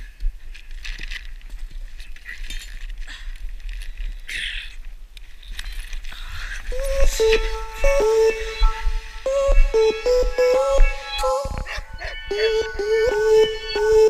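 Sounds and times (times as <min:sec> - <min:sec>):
rope rustling and scraping: 0:00.4 - 0:04.4
low microphone rumble: 0:06.1 - 0:14.0.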